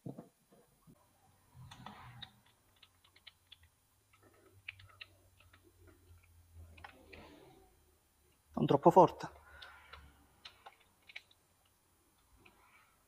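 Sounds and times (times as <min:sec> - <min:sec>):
small screws clicking: 0:01.6 - 0:07.0.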